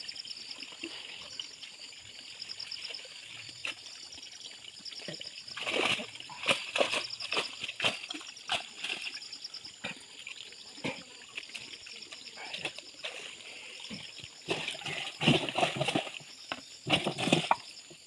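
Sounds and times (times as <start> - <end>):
fish splashing in water: 5.5 - 9.3, 14.3 - 17.7.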